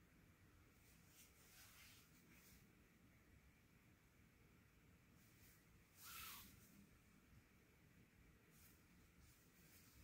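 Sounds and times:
soft rustle of cloth folding: 0:00.5 - 0:03.3, 0:04.9 - 0:10.0.

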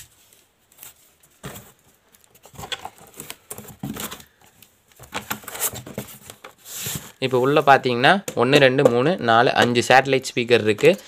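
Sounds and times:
cardboard box rustling: 0:00.8 - 0:04.4, 0:05.0 - 0:07.8
polystyrene foam scraping: 0:06.6 - 0:07.8.

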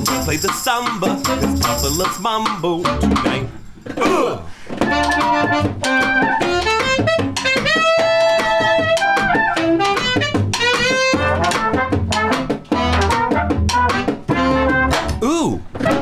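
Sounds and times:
trumpet: 0:00.0 - 0:02.2, 0:04.8 - 0:15.2, 0:15.8 - 0:16.0
snare drum: 0:00.0 - 0:03.4, 0:04.8 - 0:16.0
trombone: 0:00.0 - 0:03.5, 0:04.8 - 0:15.2
upright bass: 0:00.0 - 0:16.0
saxophone: 0:04.8 - 0:16.0.

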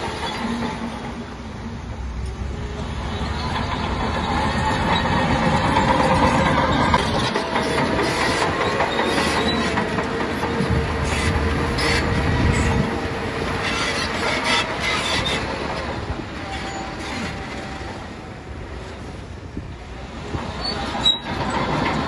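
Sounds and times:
steel tracks clanking and squealing: 0:00.0 - 0:22.0.

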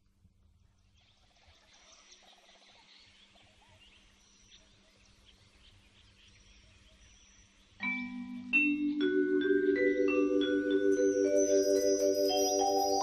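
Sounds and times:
birds chirping: 0:00.6 - 0:13.0
mallet percussion music: 0:07.8 - 0:13.0.

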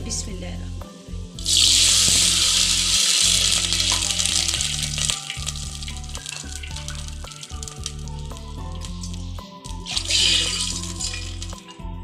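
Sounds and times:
water sizzling in hot oil: 0:01.3 - 0:11.8.

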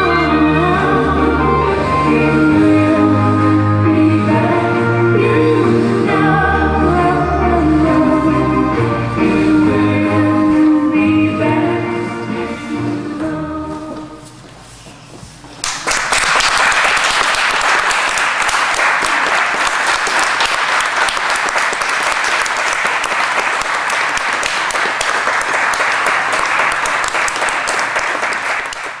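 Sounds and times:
small audience applauding: 0:15.6 - 0:29.0.

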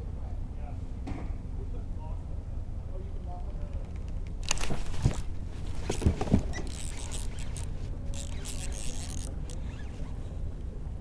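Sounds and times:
small clicks: 0:03.7 - 0:09.8
scratchy rustling: 0:04.4 - 0:10.4.

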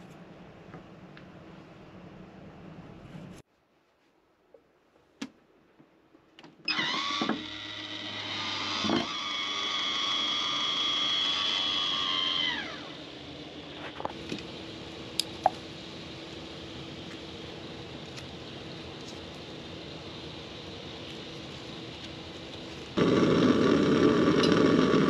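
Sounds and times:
electric motor whining: 0:06.7 - 0:14.6, 0:21.2 - 0:25.0
low steady hum: 0:12.2 - 0:25.0.

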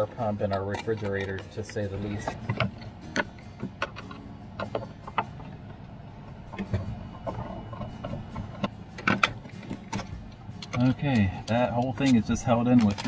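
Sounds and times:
screwdriver metallic clicks and scrapes: 0:00.4 - 0:05.3, 0:07.6 - 0:13.0.

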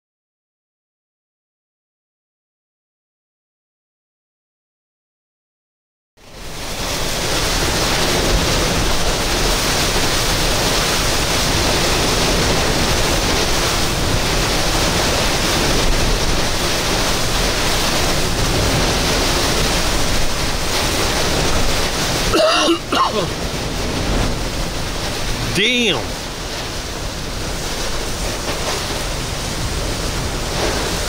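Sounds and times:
heavy wind-driven rain: 0:06.2 - 0:31.0
wind buffeting microphone: 0:06.5 - 0:22.3, 0:23.3 - 0:31.0.

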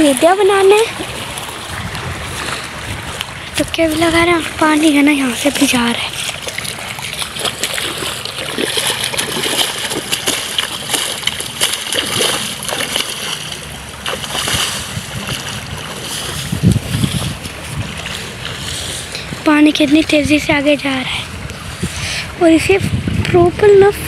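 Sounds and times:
water running in a channel: 0:00.0 - 0:24.0
spade digging mud in water: 0:03.5 - 0:19.4.

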